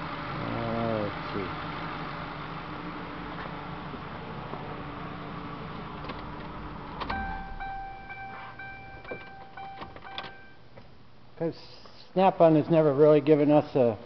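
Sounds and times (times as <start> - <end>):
car engine idling: 0.0 - 10.6
ignition switch click: 7.0 - 10.5
car warning chime: 7.1 - 10.7.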